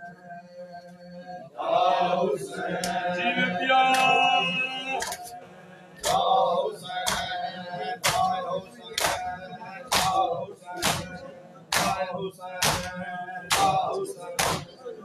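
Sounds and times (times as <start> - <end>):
men chanting a lament: 0.0 - 15.0
hands slapping bare chests: 9.9 - 10.2, 10.8 - 11.1, 11.7 - 12.0, 12.6 - 12.9, 13.5 - 13.8, 14.4 - 14.6.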